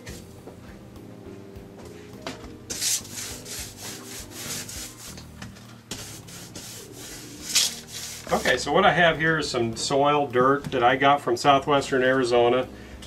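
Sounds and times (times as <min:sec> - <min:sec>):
paintbrush scrubbing on plaster: 0:02.7 - 0:05.3, 0:06.0 - 0:08.7.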